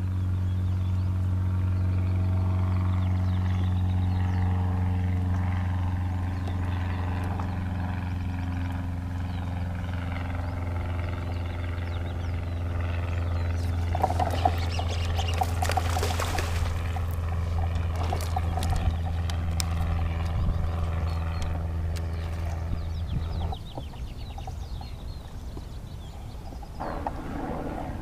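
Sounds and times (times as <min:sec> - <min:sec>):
low motor hum: 0:00.0 - 0:28.0
fish splashing at surface: 0:14.0 - 0:18.8.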